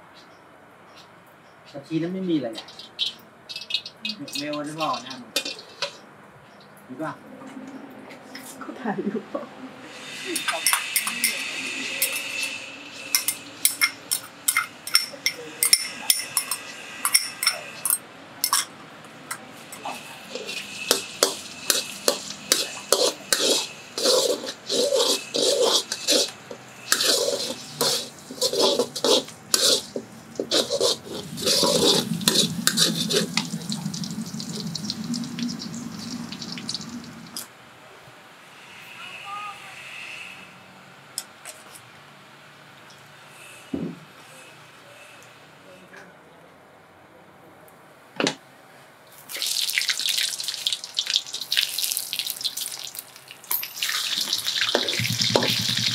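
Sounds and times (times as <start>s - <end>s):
metal spatula scraping wok: 2.7s - 6.1s, 9.8s - 37.4s, 53.6s - 55.9s
shallots sizzling in oil: 19.6s - 37.4s, 49.1s - 55.9s
spatula tapping glass bowl: 54.6s - 55.9s.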